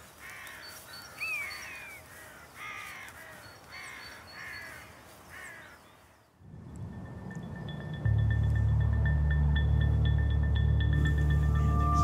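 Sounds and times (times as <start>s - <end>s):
crows calling: 0.0s - 6.4s
music: 6.8s - 12.0s.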